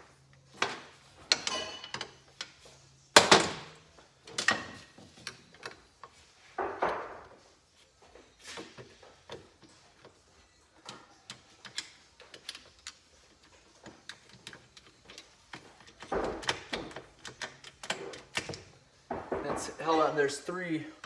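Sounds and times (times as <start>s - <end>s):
tools clicking on metal: 10.8s - 18.7s.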